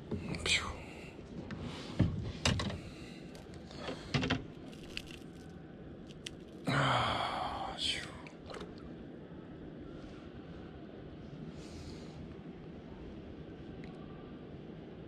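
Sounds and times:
heavy breath: 6.7 - 7.8.

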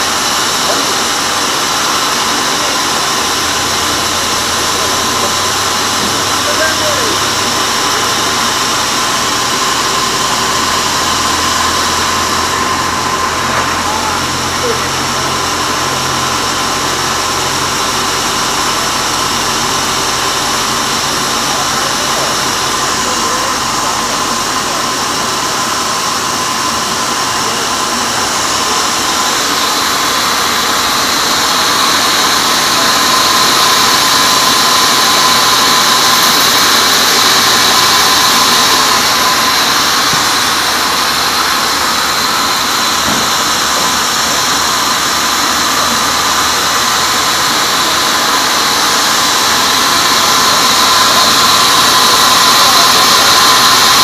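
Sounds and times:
band saw cutting log: 0.0 - 54.0.

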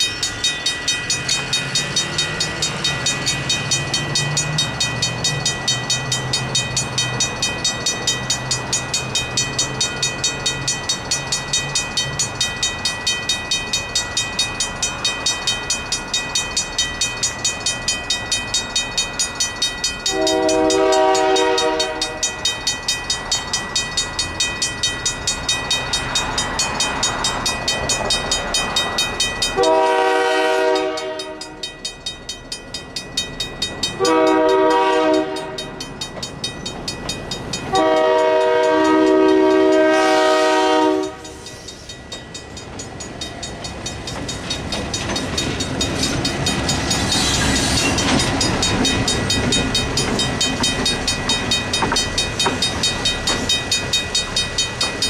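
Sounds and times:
level-crossing bell ringing: 0.0 - 55.0
locomotive rumble: 0.0 - 55.0
locomotive horn blasts: 20.1 - 22.2, 29.6 - 31.6, 34.0 - 35.8, 37.7 - 41.4.

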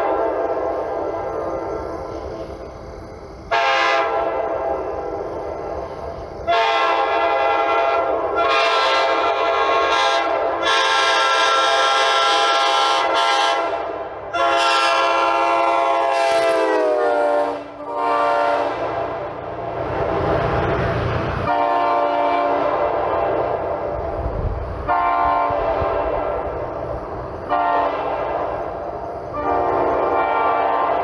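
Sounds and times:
locomotive air horn blasts: 3.5 - 4.6, 6.5 - 19.1, 21.4 - 23.0, 24.8 - 26.5, 27.5 - 28.4, 29.3 - 31.0.

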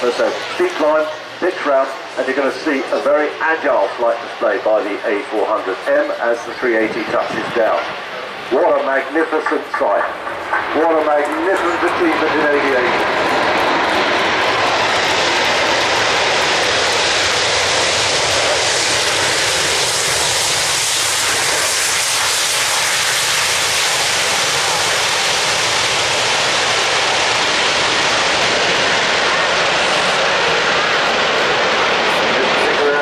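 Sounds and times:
jet engines roaring: 0.0 - 33.0
turboprop engines: 0.0 - 33.0.

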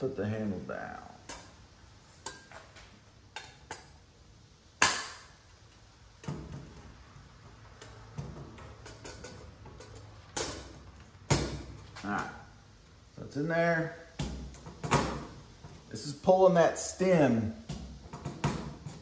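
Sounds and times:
metal vent being handled: 4.8 - 12.4.

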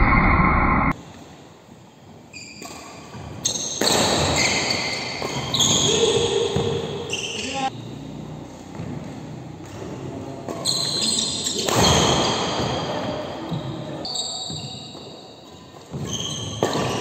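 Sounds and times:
loud burst of noise: 0.0 - 1.0
shoes squeaking on court: 2.3 - 9.5, 10.5 - 17.0.

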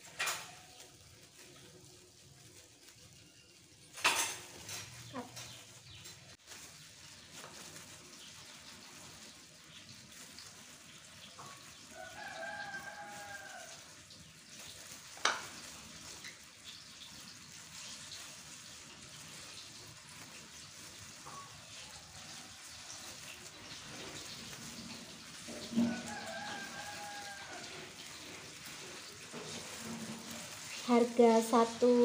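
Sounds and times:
faint rustling of gloved hands: 4.5 - 32.0
rooster crowing: 11.9 - 14.0, 25.7 - 28.1.

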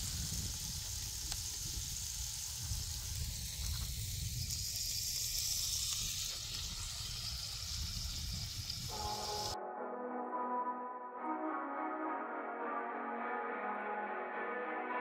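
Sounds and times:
food sizzling on a griddle: 0.0 - 9.6.

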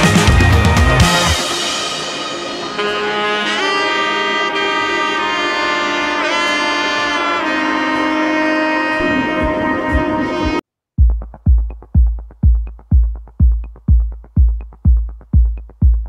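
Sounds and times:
saxophone-like melody: 0.0 - 10.6.

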